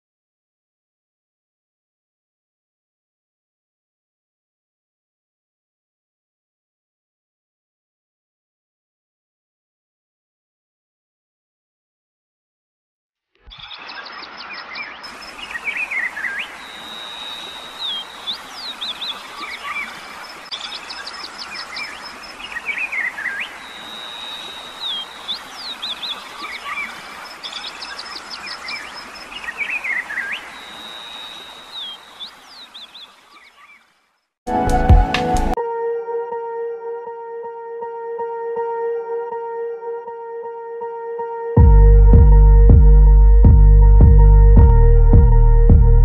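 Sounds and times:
birds calling: 0:13.5 - 0:34.1.

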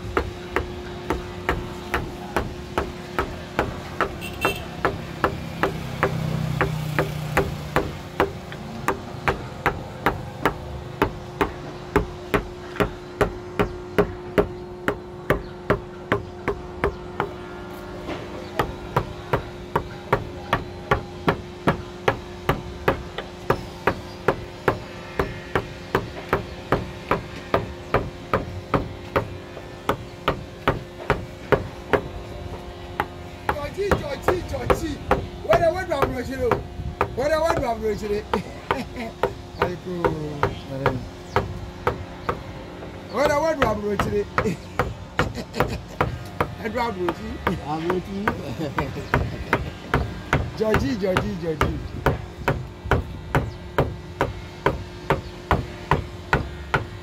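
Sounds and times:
chisel knocking into wood: 0:00.1 - 0:17.4, 0:33.0 - 0:42.4, 0:43.2 - 0:56.8.

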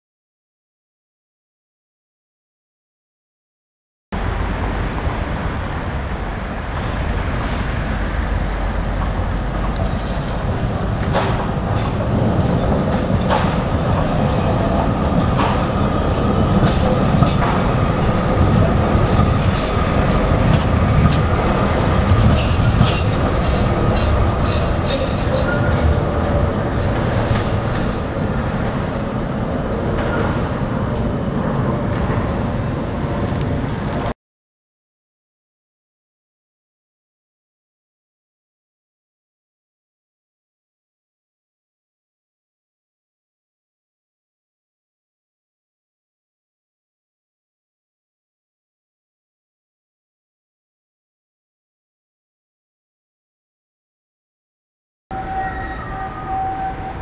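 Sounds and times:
tram rumbling past: 0:04.2 - 0:34.2, 0:55.1 - 0:57.0
wheels clacking over rail joints: 0:06.5 - 0:34.0.

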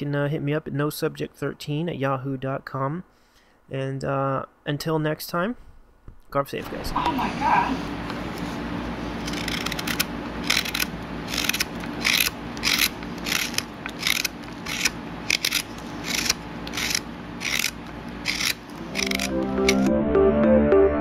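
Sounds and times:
knife carving wood strokes: 0:09.1 - 0:19.9.

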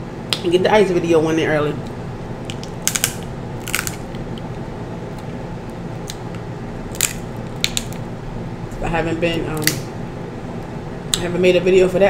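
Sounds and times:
steady hum: 0:00.0 - 0:12.0
crab shell cracking: 0:02.4 - 0:08.0, 0:09.6 - 0:09.8.

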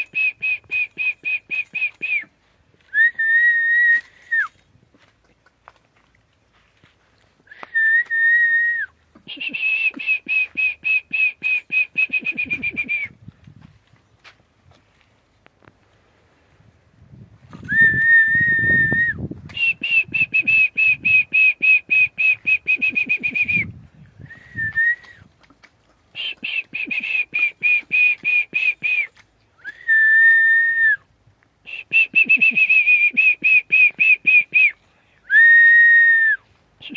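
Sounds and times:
person whistling: 0:00.0 - 0:02.3, 0:02.9 - 0:04.6, 0:07.5 - 0:13.2, 0:17.6 - 0:25.3, 0:26.2 - 0:31.0, 0:31.7 - 0:36.9.

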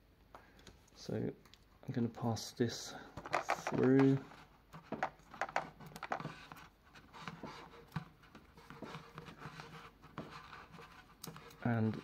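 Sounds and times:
sheet rustling and scraping: 0:03.3 - 0:12.0.

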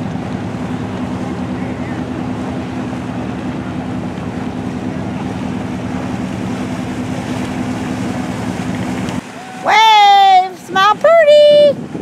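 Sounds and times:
motorboat engine running: 0:00.0 - 0:12.0
wind noise on microphone: 0:10.5 - 0:12.0.

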